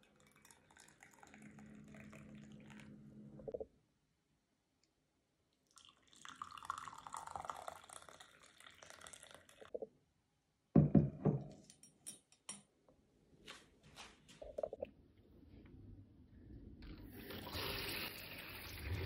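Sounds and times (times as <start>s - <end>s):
tea pouring into a cup: 0.0s - 3.1s, 5.6s - 9.7s.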